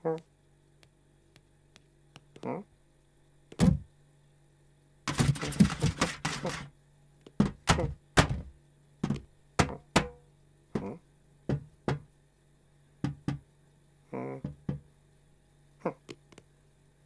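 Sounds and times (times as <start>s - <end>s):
paws scrabbling and scratching: 5.1s - 6.7s
thuds and taps: 5.1s - 6.7s, 7.3s - 10.2s, 10.8s - 12.1s, 13.0s - 13.4s, 14.4s - 14.9s.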